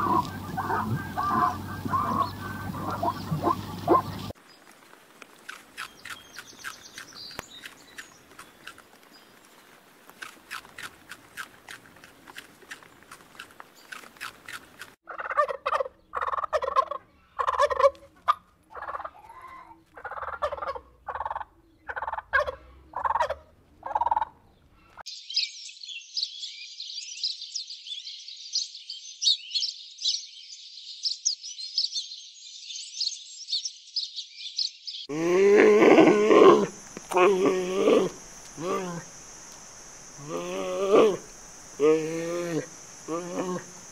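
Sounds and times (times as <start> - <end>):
turkeys gobbling: 0.0 - 4.4, 15.0 - 24.4
sparrows chirping: 0.0 - 4.7, 5.6 - 9.4, 24.5 - 35.1
faint clicking: 36.7 - 37.2, 38.2 - 40.0.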